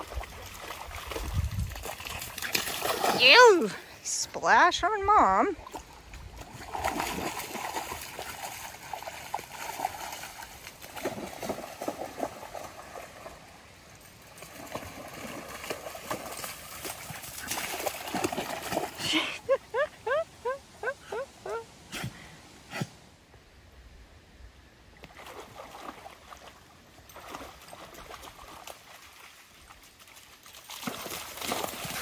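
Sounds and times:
dog splashing in water: 0.0 - 3.8, 5.6 - 13.5, 14.3 - 19.2, 25.0 - 32.0.

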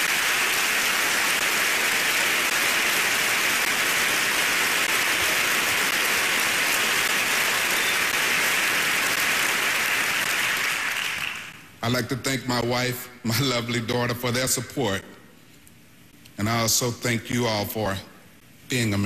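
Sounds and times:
large audience applauding: 0.0 - 11.7.

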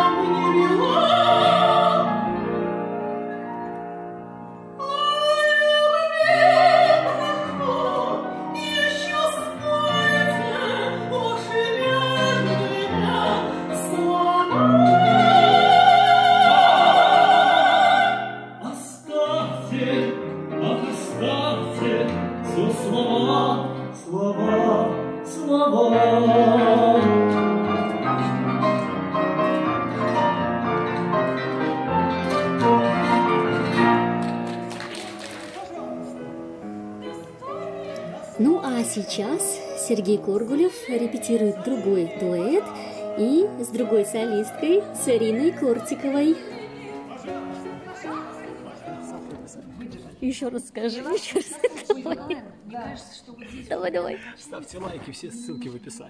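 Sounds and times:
operatic duet singing: 0.0 - 2.6, 4.8 - 27.6
grand piano accompaniment: 0.0 - 52.2.

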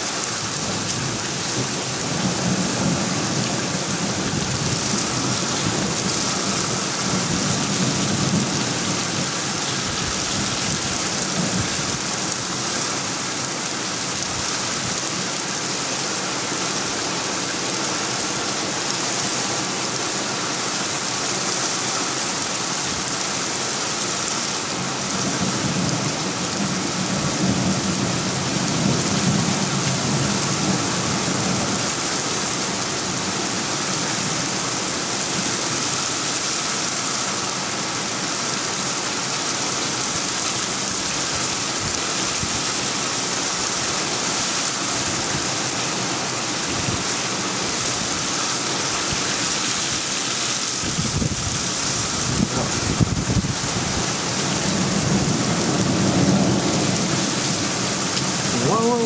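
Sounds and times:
heavy rain hiss: 0.0 - 59.0.

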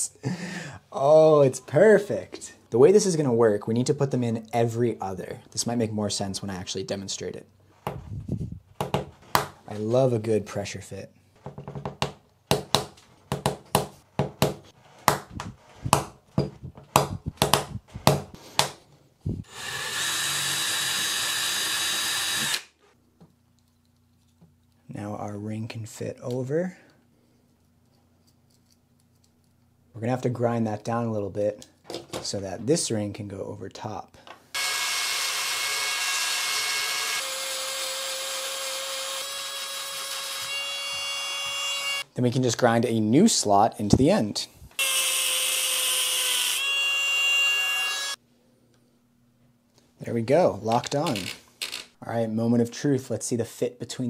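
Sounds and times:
small power tool running: 19.5 - 22.7, 34.6 - 42.0.

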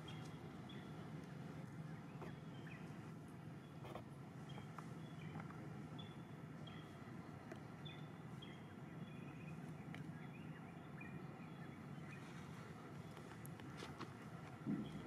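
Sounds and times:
low steady hum: 0.0 - 15.0
bird chirping: 3.6 - 13.4.

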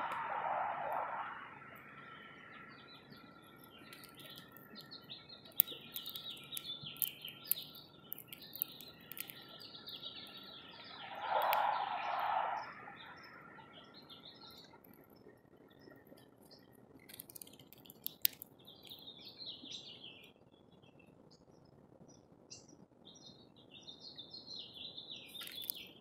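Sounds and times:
small songbirds chirping: 0.0 - 26.0
sharp clicks: 3.6 - 10.5, 11.2 - 11.7, 17.0 - 19.0, 25.3 - 25.9.

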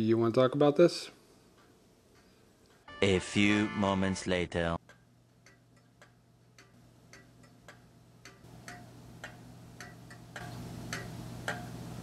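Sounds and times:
low steady hum: 0.0 - 12.0
pendulum wall clock ticking: 4.8 - 12.0.

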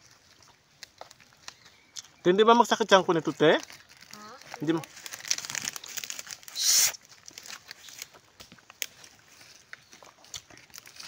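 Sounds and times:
faint wet chewing: 0.0 - 2.2, 3.7 - 11.0
loud hissing suck: 6.5 - 7.0.

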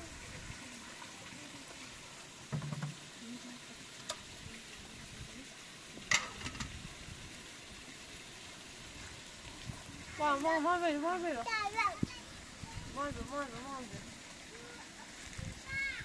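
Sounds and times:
running water hissing: 0.0 - 16.0
sharp clicks and knocks: 2.5 - 3.0.

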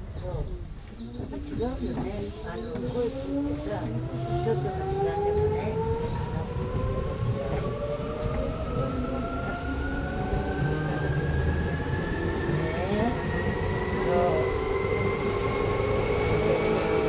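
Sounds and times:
train wheels rumbling on rails: 0.0 - 17.0
traction motor whine rising: 2.5 - 17.0.

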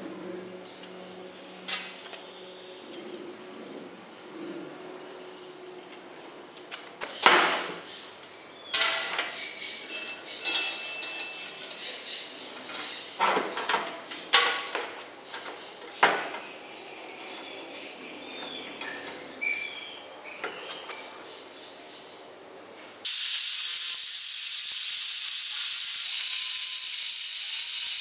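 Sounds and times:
steel parts clanking on metal: 8.7 - 17.6.

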